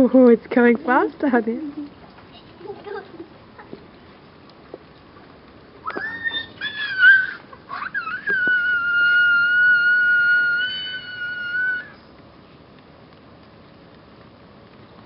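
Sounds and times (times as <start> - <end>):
high-pitched wavering cries: 5.8 - 12.1.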